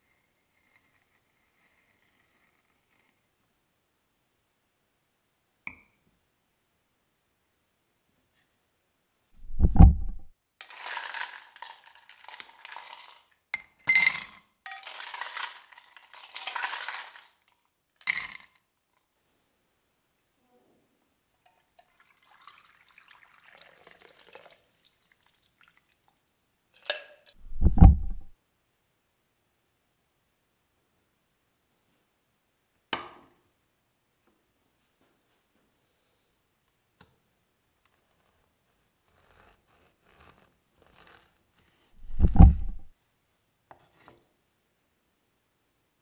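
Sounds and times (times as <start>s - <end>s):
heavy thump: 9.4s - 10.3s, 27.4s - 28.3s, 42.0s - 42.9s
ice cubes rattling into glass: 10.6s - 13.3s, 13.9s - 18.5s, 26.8s - 27.4s
juice pouring over ice: 21.5s - 26.2s.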